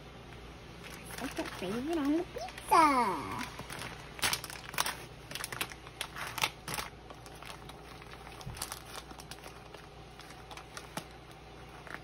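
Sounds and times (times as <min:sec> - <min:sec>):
plastic bag crinkling: 0:00.8 - 0:12.0.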